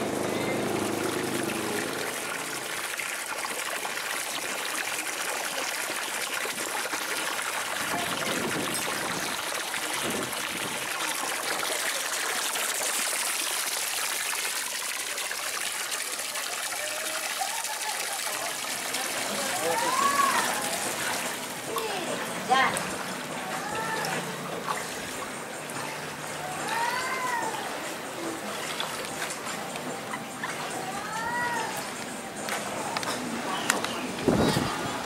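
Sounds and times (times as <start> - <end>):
water jet splashing into water: 0.0 - 34.6.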